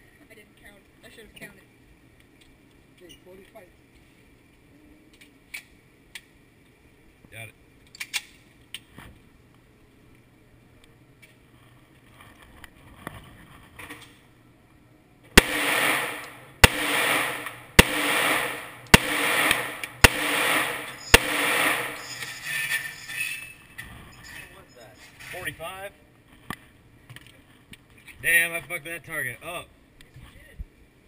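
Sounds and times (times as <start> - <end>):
gun handling clicks: 7.9 - 8.9
handgun shots echoing indoors: 15.4 - 22.3.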